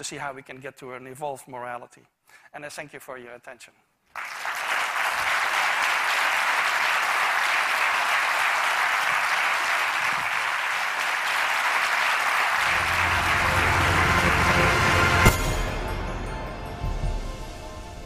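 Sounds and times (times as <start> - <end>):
large audience applauding: 4.1 - 15.4
music: 12.6 - 18.0.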